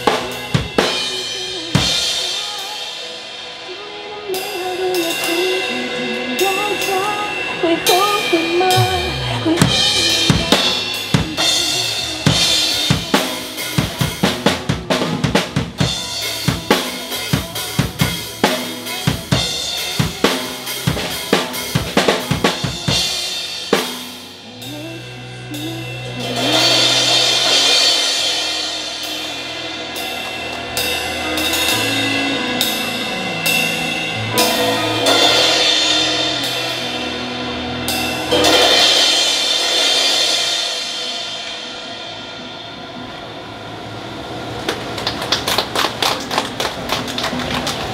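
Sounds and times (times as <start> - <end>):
cymbal crashes: 0.0 - 14.5, 25.6 - 44.6
pop backing music: 0.0 - 43.0.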